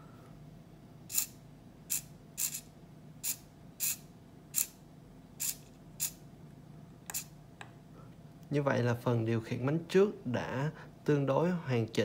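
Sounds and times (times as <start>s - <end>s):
servo whirring: 1.1s - 4.0s, 4.6s - 4.8s, 5.4s - 6.2s.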